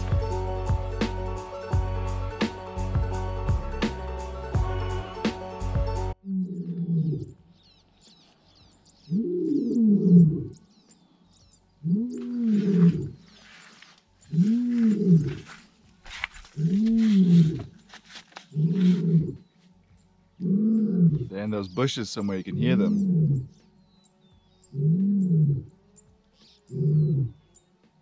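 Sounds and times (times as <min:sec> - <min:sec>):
lion roaring: 0:06.2 - 0:07.4, 0:09.1 - 0:10.6, 0:11.8 - 0:13.2, 0:14.3 - 0:15.5, 0:16.6 - 0:17.7, 0:18.5 - 0:19.4, 0:20.4 - 0:21.4, 0:22.8 - 0:23.5, 0:24.7 - 0:25.8, 0:26.7 - 0:27.4.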